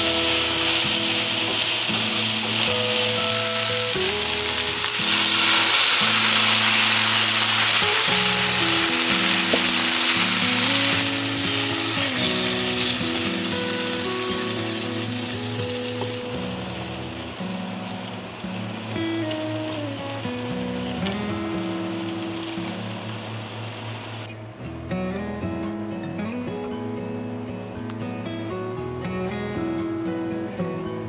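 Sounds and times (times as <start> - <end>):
sauce sizzling in a frying pan: 0.0 - 24.3
background music with held notes: 0.0 - 31.0.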